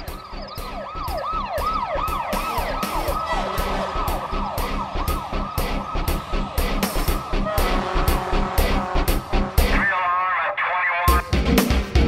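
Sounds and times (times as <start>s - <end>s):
regular beat of hits: 0.0s - 9.8s, 11.1s - 12.0s
siren yelping: 0.0s - 11.2s.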